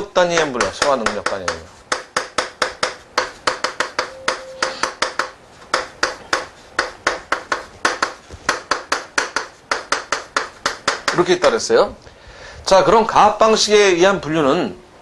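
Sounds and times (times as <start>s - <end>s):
chalk tapping on blackboard: 0.0s - 11.4s.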